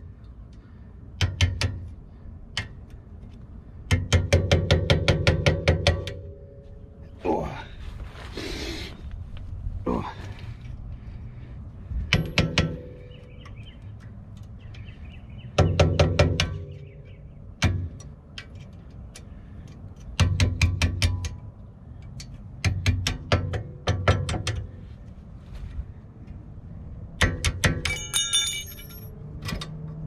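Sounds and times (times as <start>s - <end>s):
hammer tapping metal: 1.2s - 1.8s, 3.9s - 6.6s, 12.1s - 13.3s, 20.2s - 21.4s, 27.2s - 29.0s.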